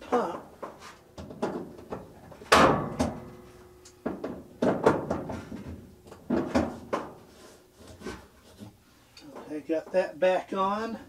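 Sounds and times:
knocks and clatter of hose: 0.6s - 8.8s
loud ringing thunk: 2.5s - 3.4s.

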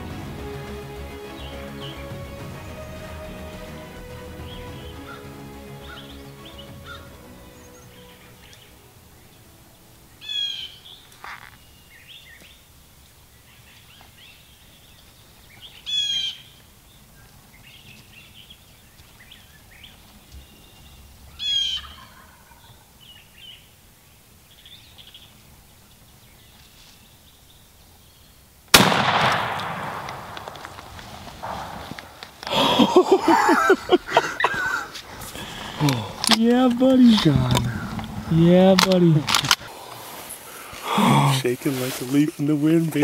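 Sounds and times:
small birds chirping faintly: 0.0s - 28.8s
turkeys gobbling: 1.2s - 8.7s, 21.4s - 22.9s, 28.8s - 39.8s
shotgun shot: 28.7s - 32.0s.

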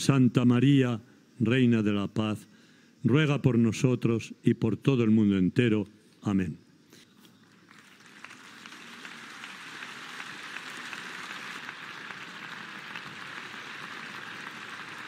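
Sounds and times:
large crowd applauding: 7.5s - 15.0s.

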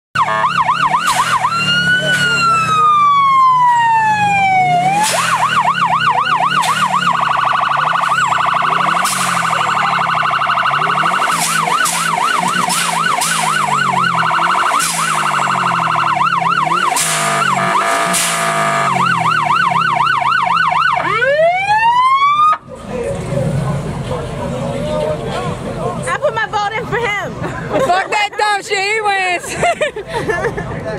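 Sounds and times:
electronic siren wailing and yelping: 0.2s - 22.7s.

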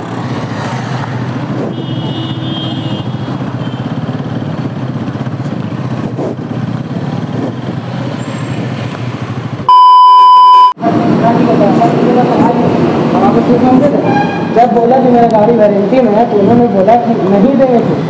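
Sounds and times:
motorcycle engine running: 0.0s - 9.7s
loud electronic beep: 9.7s - 10.8s.

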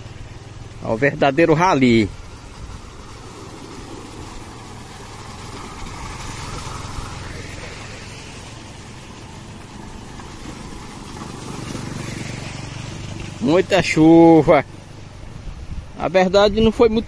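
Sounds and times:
small motorcycle engines passing: 0.0s - 17.0s
water splashing under wheels: 0.0s - 17.0s.

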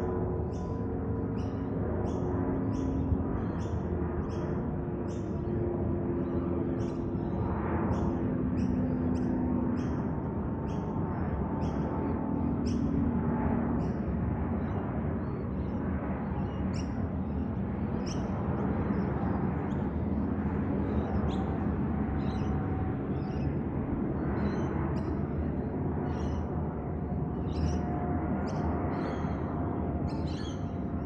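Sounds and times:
distant jet airliner rumble: 0.0s - 31.0s
bird chirps: 30.1s - 30.7s.

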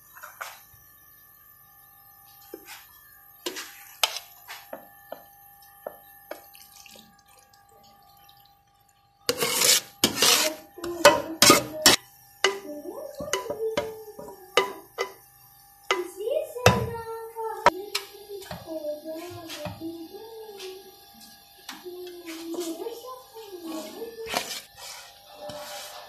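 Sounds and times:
metal spoon scraping pot: 9.3s - 12.6s, 13.2s - 15.2s, 23.7s - 26.0s.

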